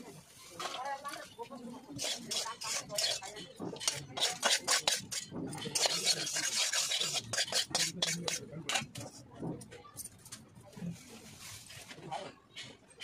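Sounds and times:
metal spatula scraping wok: 0.6s - 9.2s.

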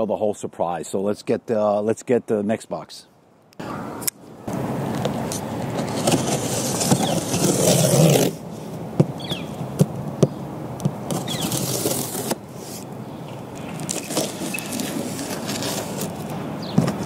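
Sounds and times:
tape and cardboard tearing: 5.3s - 8.4s, 10.8s - 12.9s, 13.7s - 17.0s
cardboard rustling: 5.6s - 8.4s, 10.8s - 12.9s, 13.7s - 17.0s.

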